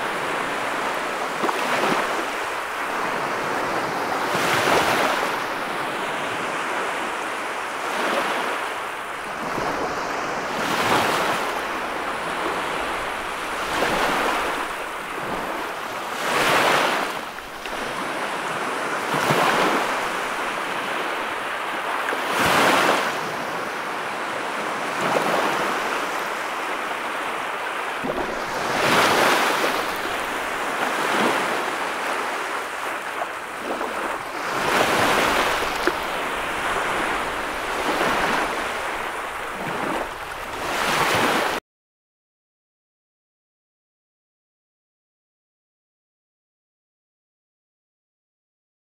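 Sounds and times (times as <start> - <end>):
small waves on sandy beach: 0.0 - 41.6.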